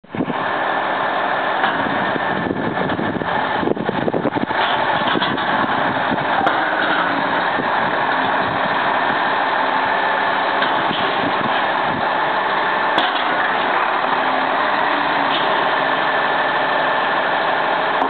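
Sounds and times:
diesel truck engine idling: 0.0s - 18.0s
irregular clatter: 4.6s - 5.6s.

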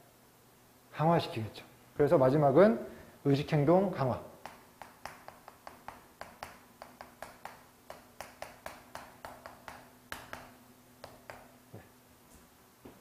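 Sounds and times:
chalk tapping on a blackboard: 4.4s - 11.9s.

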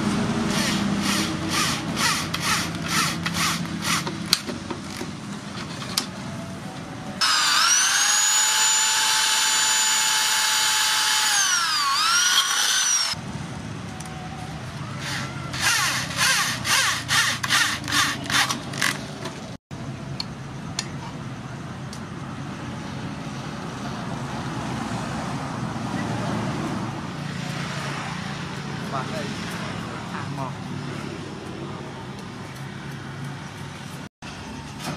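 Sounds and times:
electric drill boring: 0.5s - 4.1s, 7.2s - 13.2s, 15.0s - 19.0s
drill short pulses: 7.2s - 13.2s.

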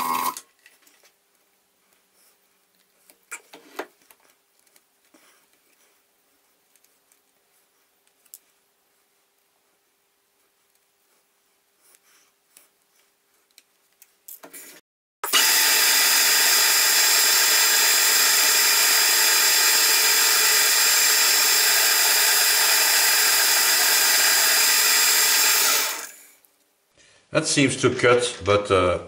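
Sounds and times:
metal lathe whine and cutting hiss: 15.3s - 26.1s.

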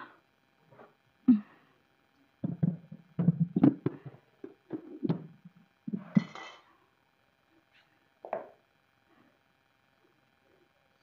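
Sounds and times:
kitchenware knocking and tapping: 2.4s - 6.3s.

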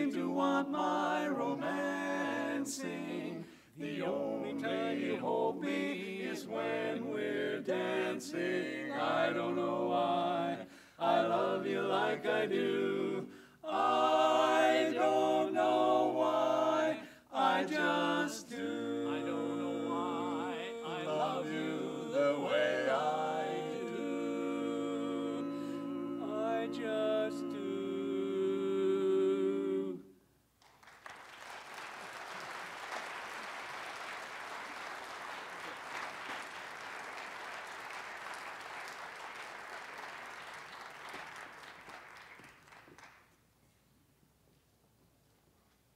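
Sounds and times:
male quartet singing a cappella: 0.0s - 30.1s
audience applauding: 30.6s - 43.4s.

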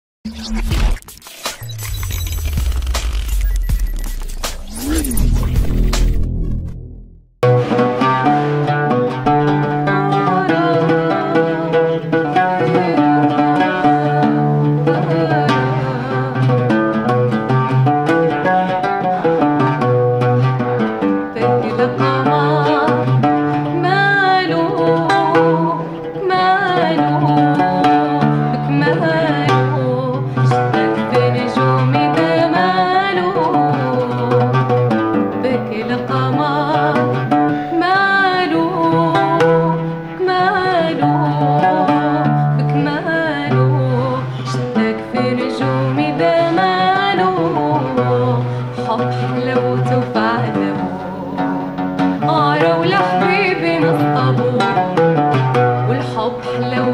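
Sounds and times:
oud plucked notes: 2.4s - 56.9s
woman singing: 9.5s - 16.8s, 21.3s - 51.6s, 52.2s - 56.9s.

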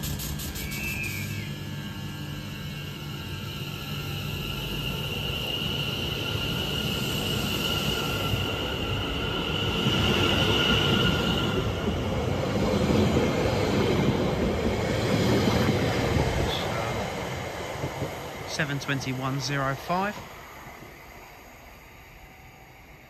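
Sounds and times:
high-pitched squeal: 0.0s - 12.3s
train wheels rumbling on rail: 1.6s - 23.0s.

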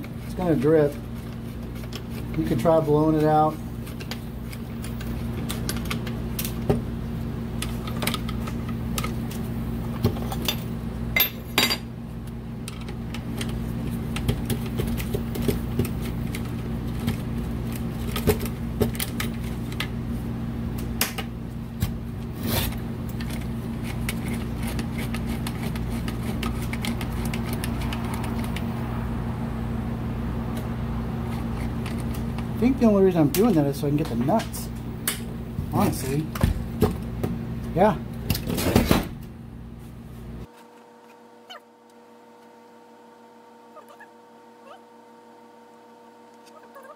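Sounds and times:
steady low hum: 0.0s - 46.9s
metal tools clinking on fittings: 10.3s - 11.8s.

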